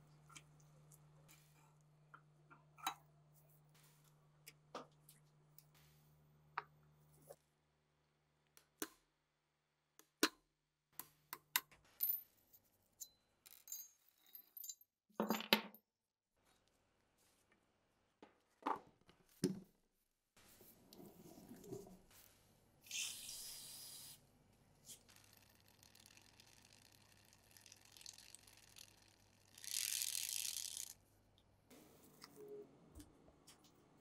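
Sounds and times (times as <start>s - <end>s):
metal parts clicking and clinking: 13.0s - 15.5s.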